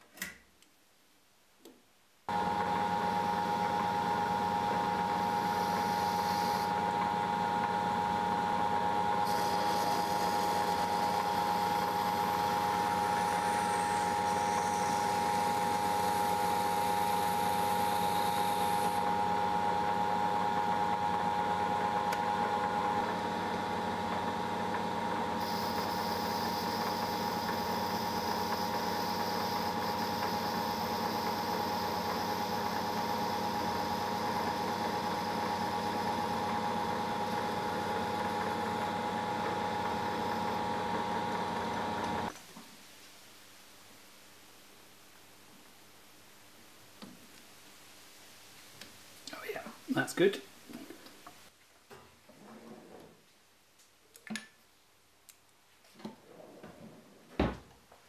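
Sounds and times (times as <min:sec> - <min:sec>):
lathe whining: 0:02.3 - 0:20.1, 0:21.8 - 0:42.3.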